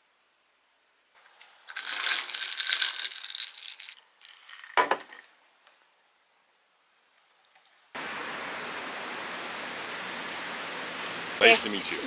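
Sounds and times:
egg shell crackling: 1.4s - 5.3s.

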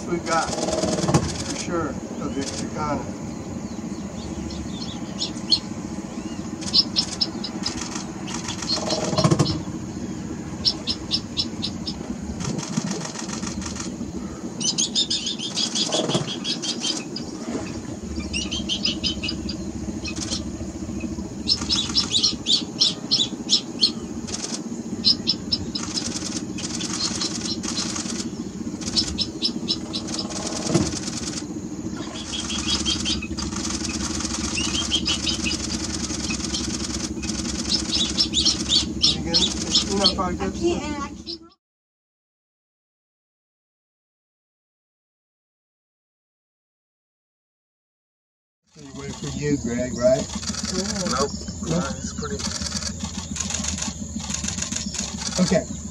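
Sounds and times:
low steady hum: 0.0s - 41.6s, 48.7s - 55.9s
camera shutters clicking: 12.4s - 13.9s.

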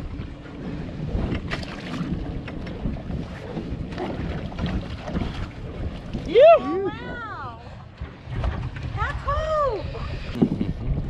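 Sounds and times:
water splashing against boat: 0.0s - 11.0s
wind buffeting microphone: 0.0s - 11.0s.

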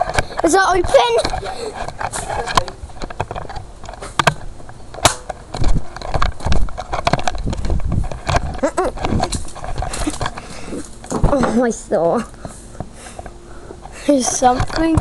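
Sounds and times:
camera handling rubbing and knocks: 0.0s - 11.3s.

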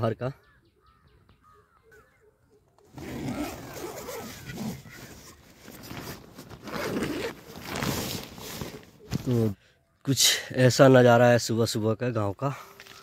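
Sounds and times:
faint bird chirps: 0.0s - 3.0s
tent zipper pulled open: 2.8s - 9.3s
nylon fabric rustling: 3.0s - 9.3s.

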